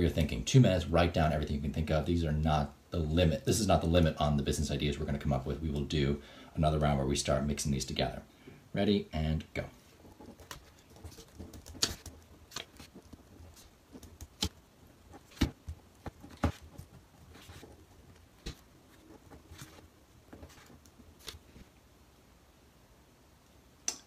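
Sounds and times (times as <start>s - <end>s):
pen scratching on paper: 10.0s - 21.4s.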